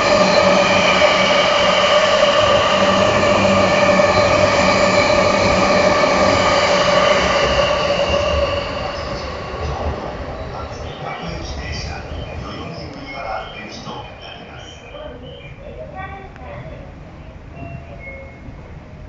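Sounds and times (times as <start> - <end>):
train wheels rushing on rail: 0.0 - 19.0
high ringing tones: 17.5 - 19.0.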